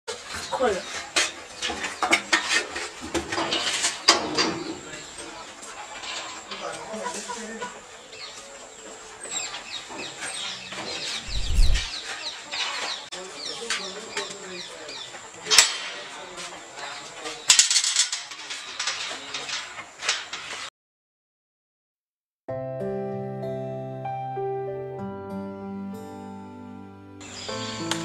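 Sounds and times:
birds chirping: 7.8s - 15.4s.

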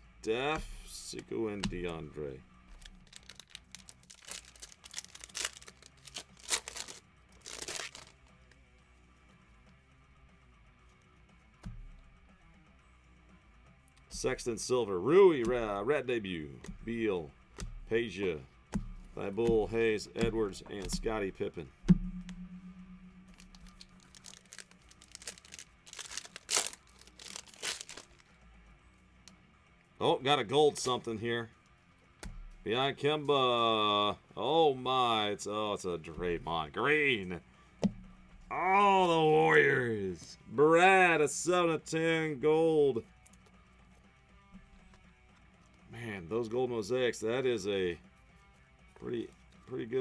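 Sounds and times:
foil wrapper tearing and crinkling: 2.7s - 8.2s, 23.3s - 28.2s.

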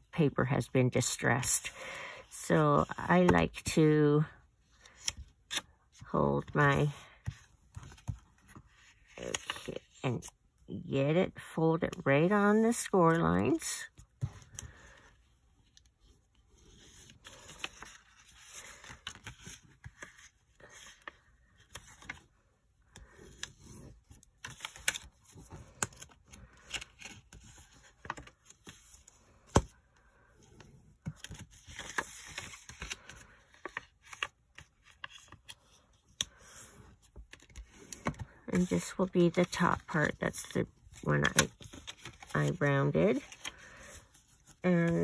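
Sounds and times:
paper rustling and crinkling: 15.7s - 22.4s, 23.0s - 29.7s, 31.0s - 45.0s.

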